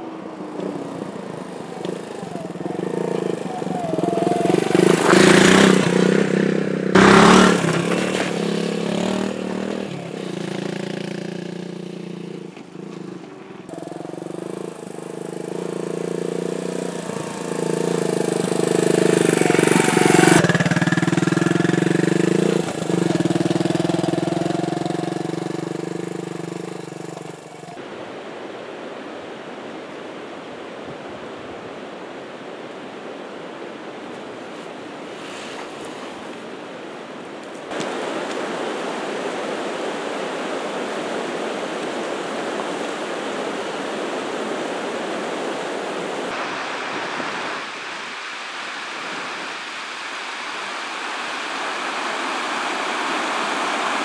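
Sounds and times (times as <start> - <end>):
motorcycle engine revving: 0.0 - 27.8
river water rushing: 0.0 - 54.0.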